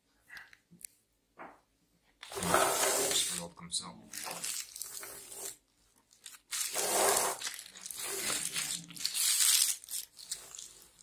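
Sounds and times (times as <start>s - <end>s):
plastic packaging crinkling: 4.1s - 11.0s.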